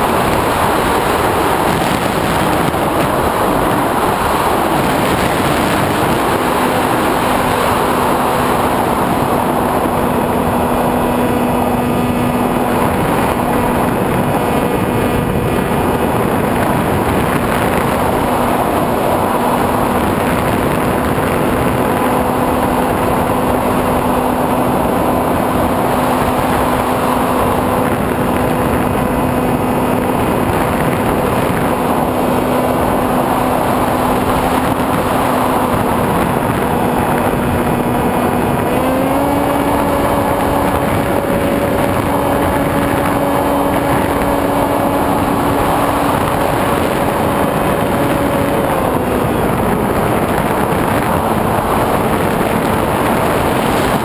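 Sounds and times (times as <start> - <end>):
electric motor and propeller hum: 0.0 - 54.0
wind rushing over camera: 0.0 - 54.0.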